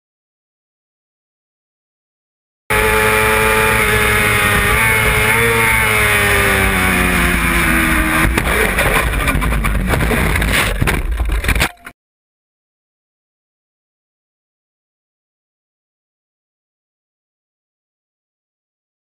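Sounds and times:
motorcycle engine at speed: 2.7 - 11.6
scraping and tumbling impacts: 2.7 - 11.9
crash knock: 7.8 - 11.7.

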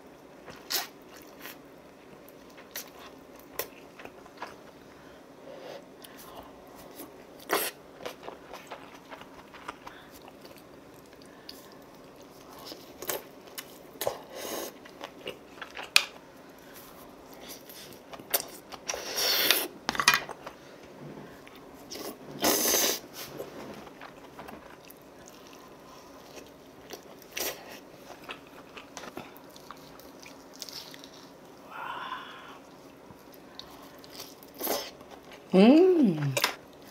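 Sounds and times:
chewing and biting: 23.9 - 31.4.

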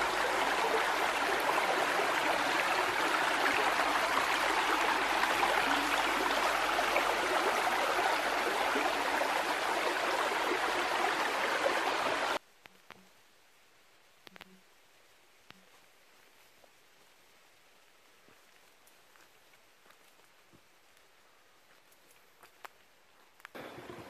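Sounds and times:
stream babbling over stones: 0.0 - 12.4.

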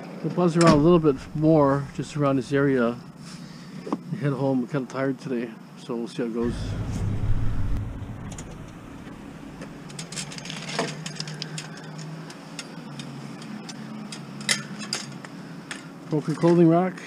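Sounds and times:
steady low hum: 0.6 - 3.8, 6.4 - 10.6.

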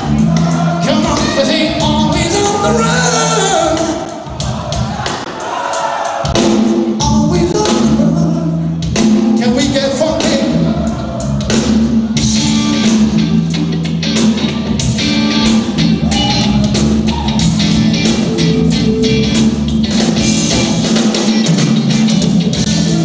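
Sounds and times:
male vocal singing: 0.0 - 4.0, 7.0 - 8.6, 9.3 - 11.2
bass guitar: 0.0 - 5.0, 6.4 - 23.0
drums: 0.0 - 23.0
electric guitar: 11.5 - 23.0.

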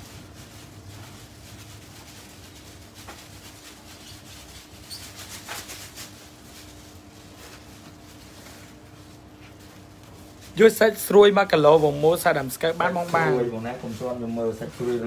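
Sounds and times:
foam box scrapes and squeaky clicks: 4.0 - 5.9.

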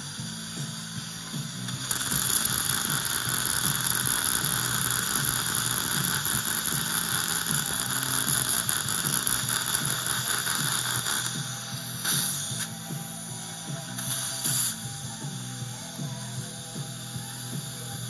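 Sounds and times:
dental drill running: 0.0 - 18.0
irrigation spray hiss: 0.0 - 18.0
surgical suction: 1.7 - 14.8.

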